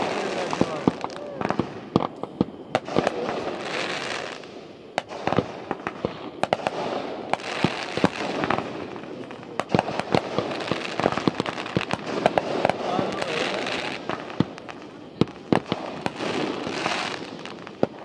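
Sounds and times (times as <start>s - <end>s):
fireworks bangs: 0.0s - 18.0s
fireworks hiss: 0.0s - 18.0s.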